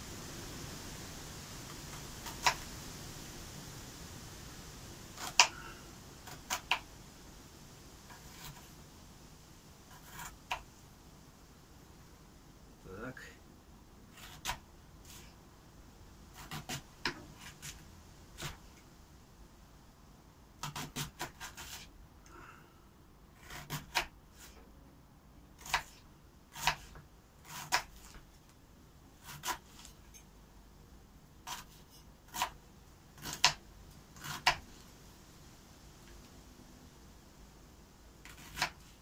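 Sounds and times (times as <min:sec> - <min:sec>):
knife chopping on wooden board: 0:20.6 - 0:21.9, 0:25.6 - 0:28.2, 0:33.2 - 0:33.6, 0:38.3 - 0:38.8.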